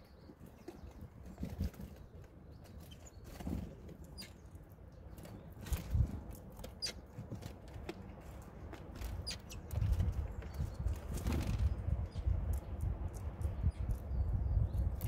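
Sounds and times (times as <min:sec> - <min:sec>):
feet and beaks tapping seeds: 0:00.2 - 0:15.0
bird wings fluttering: 0:05.2 - 0:11.9.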